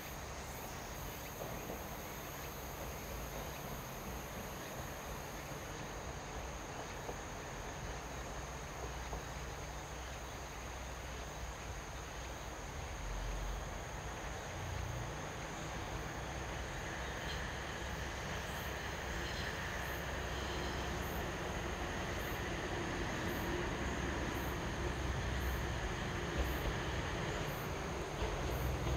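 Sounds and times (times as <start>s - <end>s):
diesel railcar engine and wheel rumble: 0.0s - 28.9s
insects chirring: 0.0s - 28.9s.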